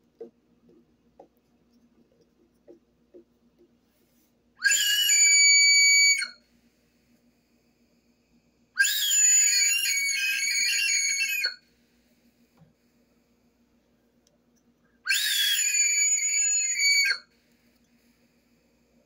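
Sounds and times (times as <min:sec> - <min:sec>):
shrill high-pitched cries: 0:04.6 - 0:06.4, 0:08.8 - 0:11.6, 0:15.0 - 0:17.3.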